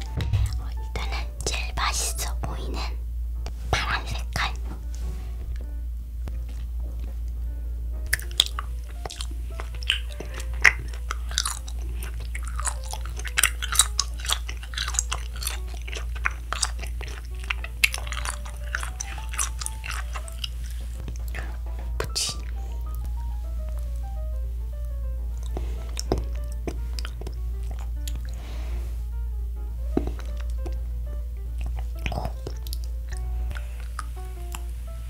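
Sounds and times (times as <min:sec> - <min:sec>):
low steady hum: 0:00.0 - 0:35.0
wax candy crunching between teeth: 0:08.1 - 0:24.1, 0:25.3 - 0:28.6, 0:29.9 - 0:30.8, 0:31.5 - 0:34.7.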